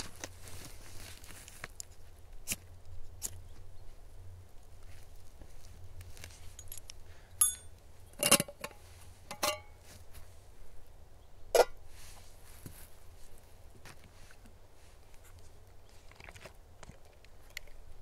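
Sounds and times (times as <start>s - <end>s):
metal cookware clinking: 9.3s - 9.8s.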